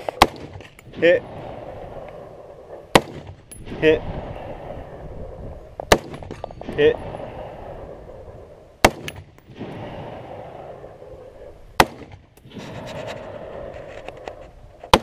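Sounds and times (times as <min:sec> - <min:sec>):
rifle shots: 0:00.1 - 0:00.6, 0:02.9 - 0:03.8, 0:05.8 - 0:06.8, 0:08.8 - 0:09.9, 0:11.8 - 0:12.6.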